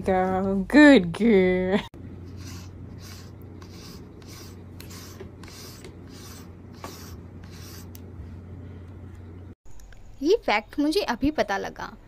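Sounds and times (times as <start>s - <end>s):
steady low hum: 0.0s - 11.2s
brush scratching through fur: 2.3s - 7.9s.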